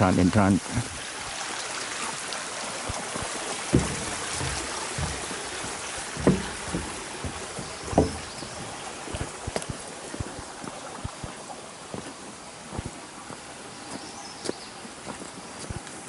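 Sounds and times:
mountain stream rushing: 0.0s - 16.0s
dull thumps: 2.9s - 11.2s.

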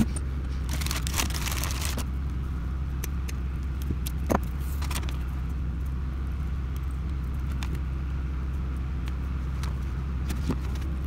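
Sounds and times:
rustling: 0.0s - 2.1s
low mechanical hum: 0.0s - 11.0s.

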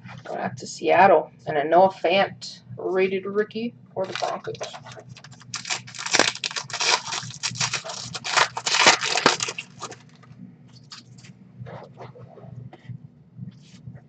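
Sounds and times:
foil wrapper tearing and crinkling: 4.0s - 10.2s.

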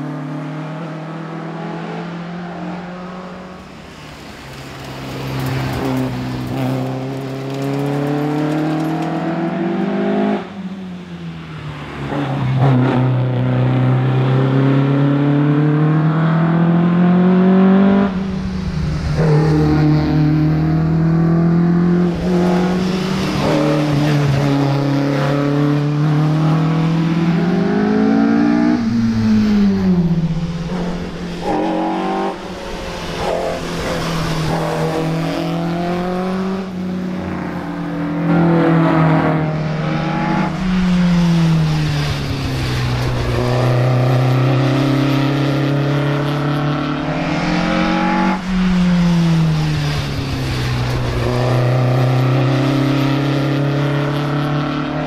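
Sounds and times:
car engine accelerating hard: 11.7s - 55.0s.

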